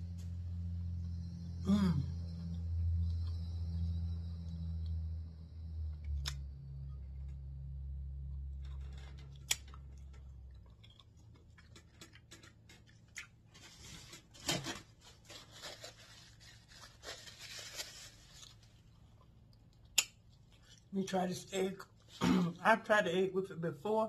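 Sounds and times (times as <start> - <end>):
low steady hum: 0.0 - 24.0
small clicks and smacks: 8.6 - 13.4, 19.5 - 20.9
paper napkin crinkling: 13.5 - 18.9.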